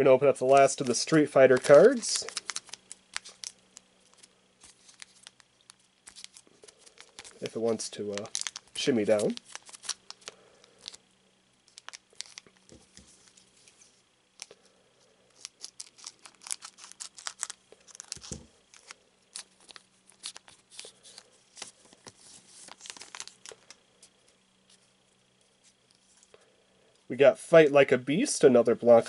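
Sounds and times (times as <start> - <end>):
foil wrapper crinkling and tearing: 0.4 - 11.0, 11.7 - 12.7, 15.3 - 23.8.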